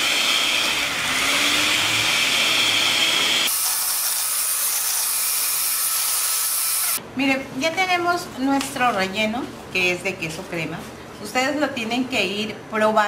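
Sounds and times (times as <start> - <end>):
electric hand mixer whipping: 0.0 - 7.0.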